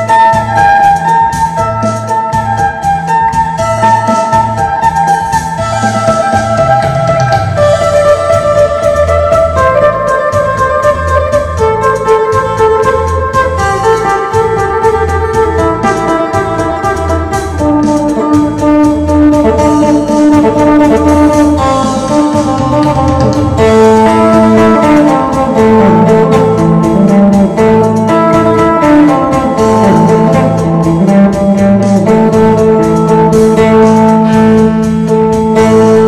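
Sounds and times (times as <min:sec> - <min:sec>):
plucked lute melody over drone: 0:00.0 - 0:36.0.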